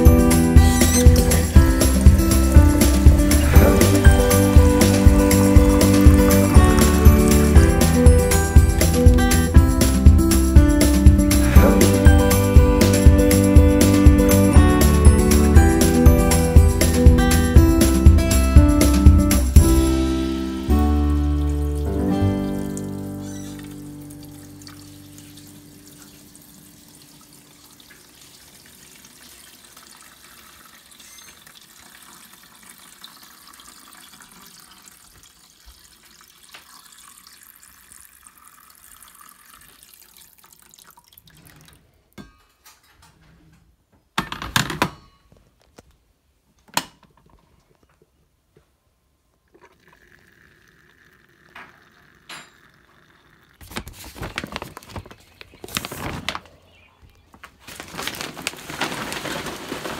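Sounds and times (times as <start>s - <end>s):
water pouring into coffee brewer: 2.9s - 9.2s, 27.8s - 41.8s, 49.5s - 53.9s
coffee dripping trickle: 24.0s - 41.9s, 49.4s - 53.9s.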